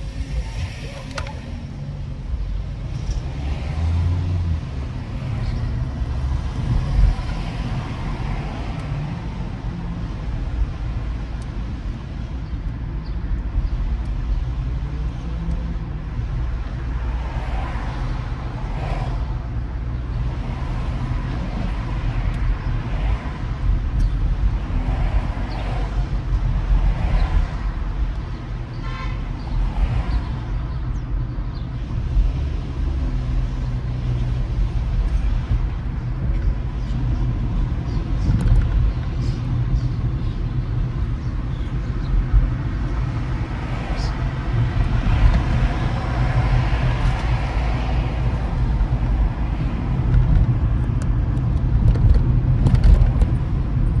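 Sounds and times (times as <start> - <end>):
car engine and tyres rumble: 0.0 - 54.0
car horn toot: 28.8 - 29.3.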